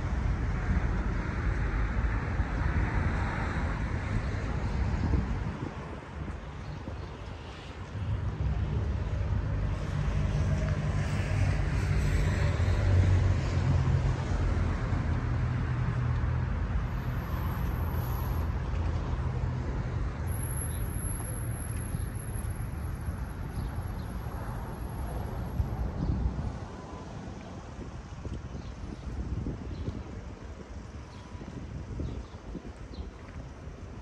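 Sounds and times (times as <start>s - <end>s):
road noise: 0.0s - 34.0s.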